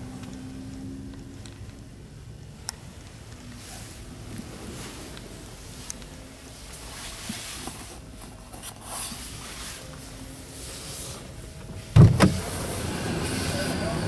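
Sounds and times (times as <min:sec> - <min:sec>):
outside noise: 0:00.0 - 0:14.0
handling rustle: 0:02.9 - 0:12.0
car door unlatching clunk: 0:11.9 - 0:12.6.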